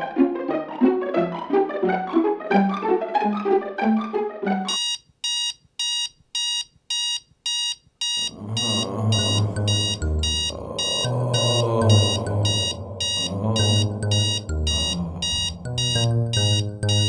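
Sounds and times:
plucked-string music: 0:00.0 - 0:04.7
low music: 0:00.0 - 0:04.8, 0:08.4 - 0:17.0
alarm clock beeping: 0:04.7 - 0:17.0.

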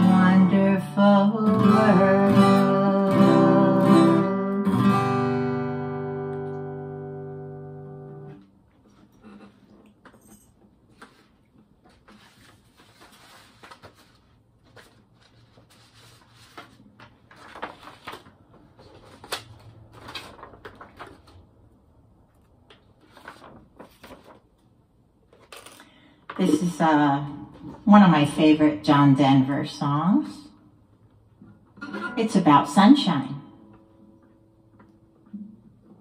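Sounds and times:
acoustic guitar chord ringing: 0:00.0 - 0:08.4.

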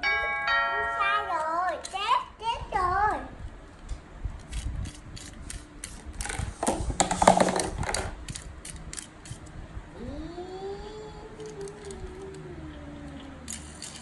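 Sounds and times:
toy car ratcheting clicks: 0:04.4 - 0:06.4, 0:08.3 - 0:09.4, 0:11.4 - 0:12.4, 0:13.1 - 0:14.0.

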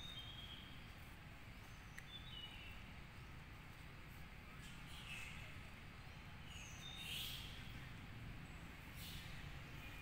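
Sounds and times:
faint high-pitched chirp: 0:00.0 - 0:01.0, 0:08.9 - 0:10.0.

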